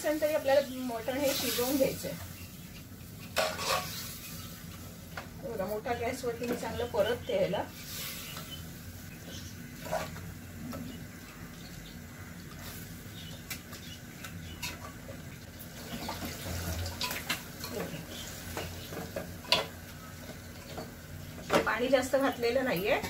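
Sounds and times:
meat sizzling: 0.0 - 22.9
metal spoon scraping a pot: 3.2 - 4.1.

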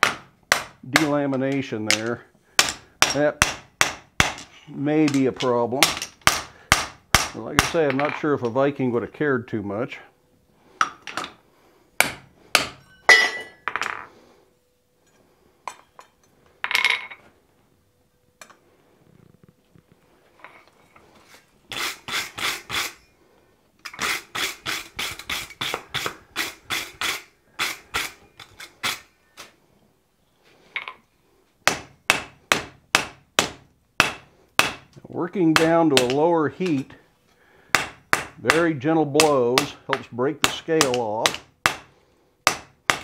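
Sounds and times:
hammer striking metal on anvil: 12.0 - 13.9.

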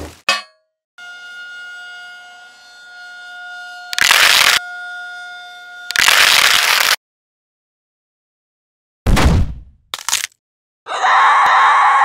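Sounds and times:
loud blasts of harsh noise: 1.0 - 7.0
siren tone: 1.0 - 7.0.

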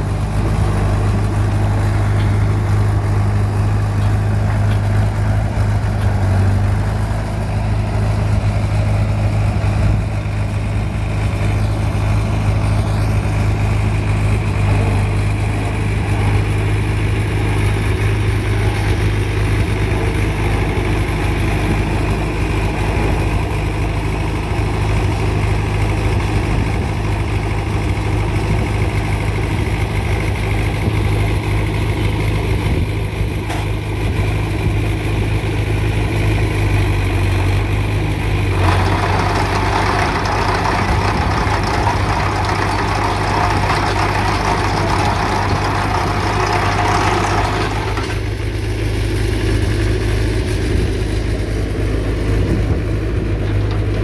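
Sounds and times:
trencher engine running: 0.0 - 54.0
digging chain cutting gravel: 38.5 - 48.4.

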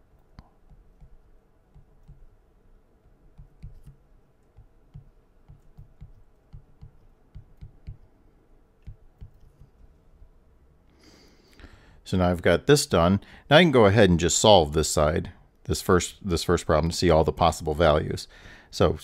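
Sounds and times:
stylus tapping on a screen: 0.2 - 2.4, 3.0 - 8.1, 8.8 - 10.4.

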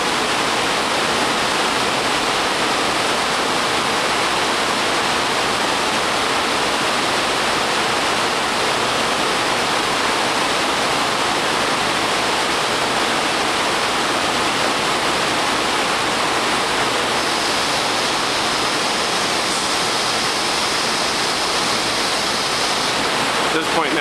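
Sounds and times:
faint high whine: 0.0 - 24.0
loud rushing noise: 11.0 - 24.0.

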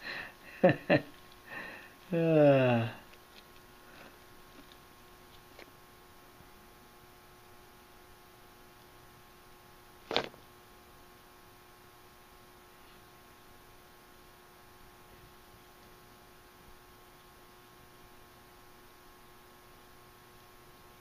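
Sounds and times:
faint electrical hum: 0.0 - 21.0.

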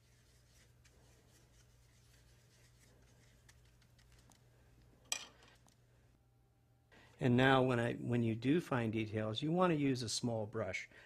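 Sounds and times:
paintbrush scratching on paper: 0.0 - 4.2.

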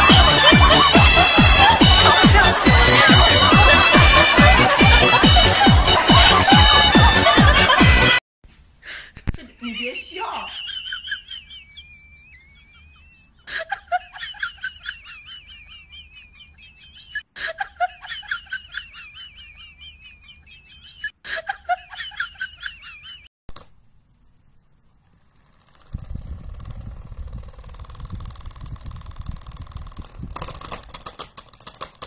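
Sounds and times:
high-pitched rapid giggling: 0.0 - 8.1, 9.4 - 23.3
click: 23.5 - 23.8.

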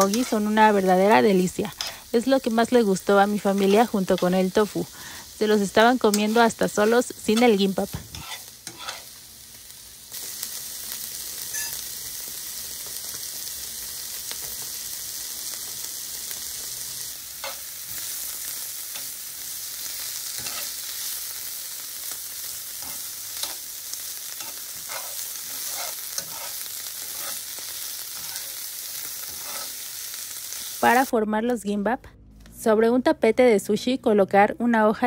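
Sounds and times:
metal utensil scraping pan: 0.0 - 0.7, 6.0 - 9.1, 11.5 - 11.8, 20.2 - 21.0, 22.7 - 29.9
mushrooms sizzling in frying pan: 0.0 - 31.1.

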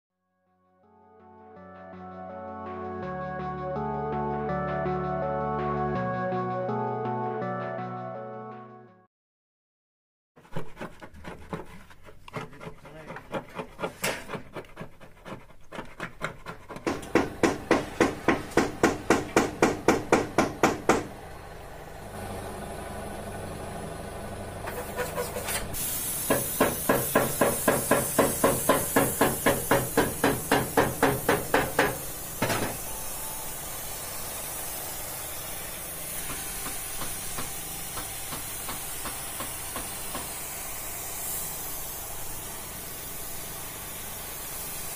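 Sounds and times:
paint spray gun hissing: 25.7 - 44.9.

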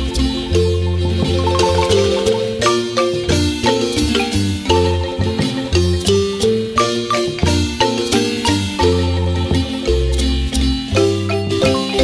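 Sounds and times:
deep bass line: 0.0 - 6.8
marimba dance music: 0.0 - 12.0.

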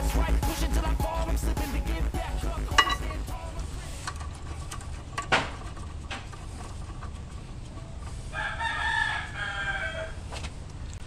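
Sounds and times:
rooster crowing: 8.3 - 10.3.

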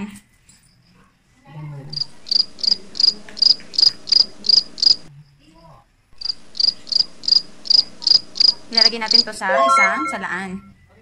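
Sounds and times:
cricket chirping: 1.9 - 9.4.

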